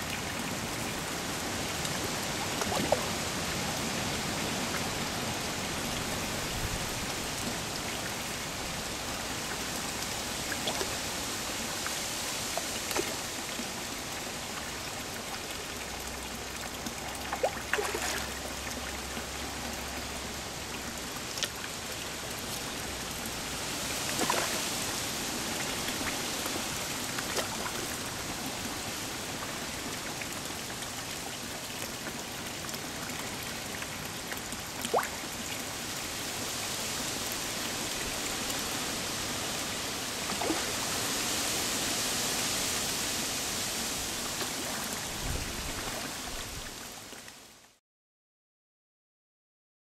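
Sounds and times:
water churning into pond: 0:00.0 - 0:47.2
fish splashing at surface: 0:17.3 - 0:18.5, 0:24.1 - 0:24.9.

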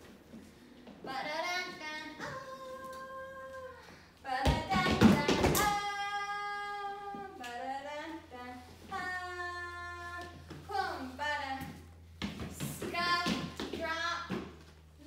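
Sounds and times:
woman singing wordless sounds: 0:01.1 - 0:11.8.

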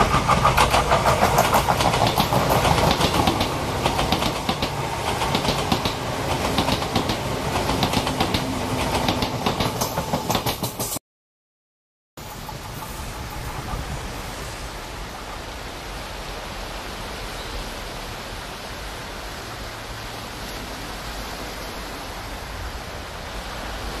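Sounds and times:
wind rumble on microphone: 0:12.2 - 0:15.6.

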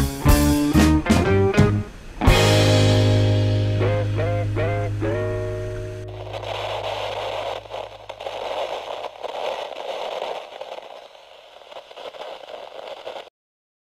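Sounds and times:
crackling tv static: 0:05.8 - 0:13.3.

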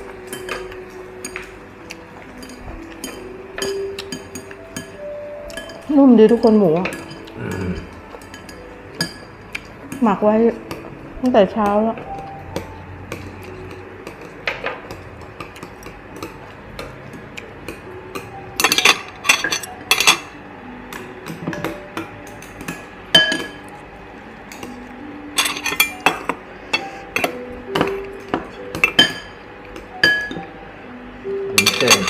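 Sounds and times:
utensils clinking against bowls: 0:00.0 - 0:23.8, 0:24.4 - 0:30.6, 0:31.5 - 0:32.0.

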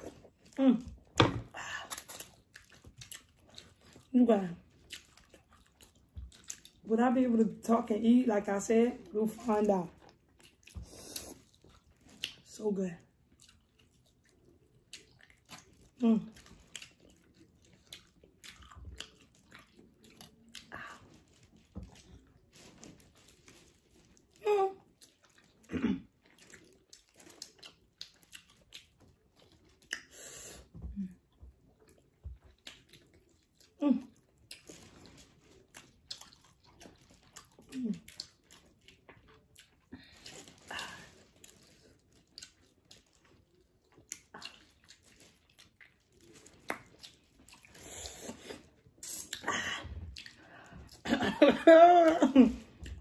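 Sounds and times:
chewing with mouth clicks: 0:00.0 - 0:06.9, 0:09.9 - 0:51.1, 0:52.1 - 0:53.0
lip smacks: 0:29.8 - 0:30.4, 0:45.6 - 0:49.5.

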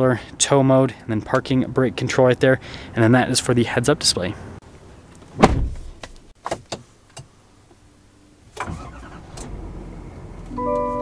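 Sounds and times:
thump: 0:05.4 - 0:06.2
diesel engine starting and idling: 0:08.5 - 0:11.0
dashboard chime: 0:10.6 - 0:11.0.

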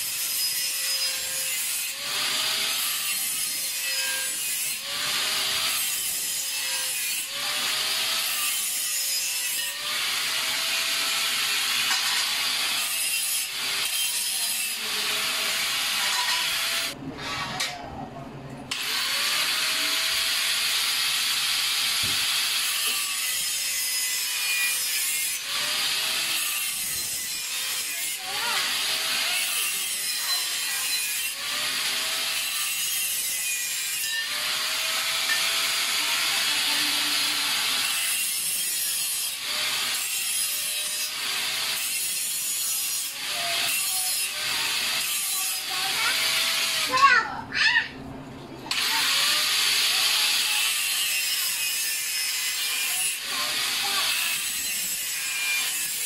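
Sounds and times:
wood being sawn: 0:42.6 - 0:47.1, 0:48.7 - 0:56.0.

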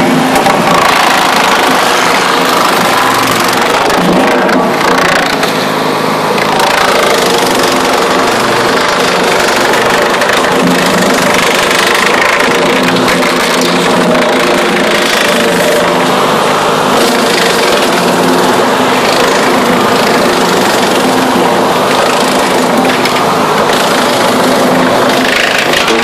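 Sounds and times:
wood chipper running under load: 0:00.0 - 0:26.0
wood chips blowing out: 0:00.0 - 0:26.0.

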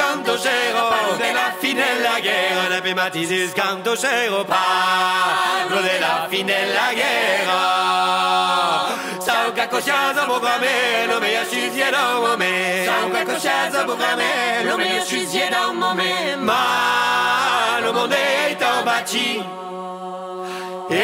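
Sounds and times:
vocal group singing polyphony: 0:00.0 - 0:21.0.

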